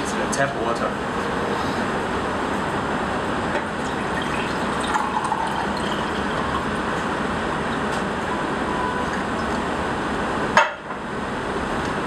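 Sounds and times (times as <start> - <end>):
water pouring into glass: 3.6 - 9.6.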